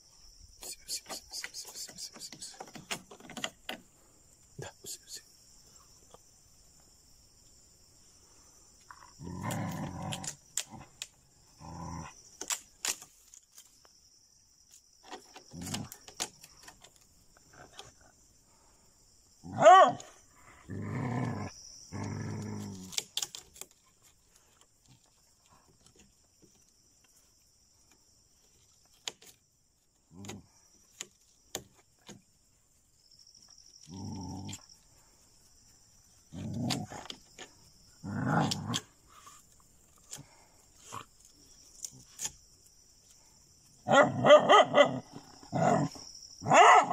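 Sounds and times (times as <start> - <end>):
insects chirring: 0.0 - 46.9
dogs growling and barking: 8.9 - 12.2, 19.4 - 23.2, 33.8 - 34.7, 36.2 - 39.4, 43.8 - 46.9.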